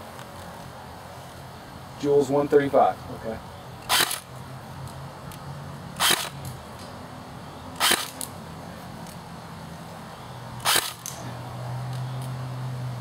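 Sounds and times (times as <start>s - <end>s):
airsoft gun shots: 6.0s - 6.3s, 7.8s - 8.2s, 10.6s - 11.2s.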